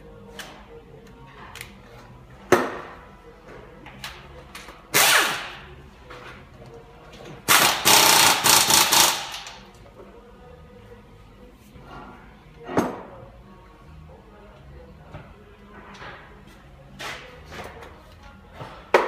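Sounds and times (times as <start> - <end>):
impact wrench hammering: 7.5 - 9.6.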